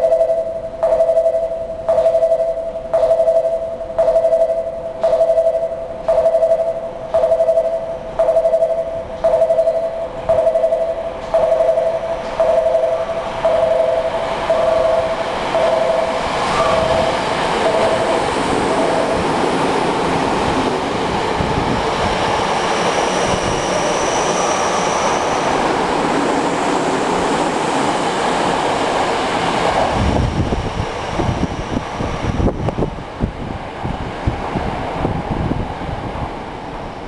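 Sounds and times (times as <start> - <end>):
two-note chime: 0.0 - 19.2
thin high whine: 0.0 - 19.3
train rushing past: 5.9 - 37.0.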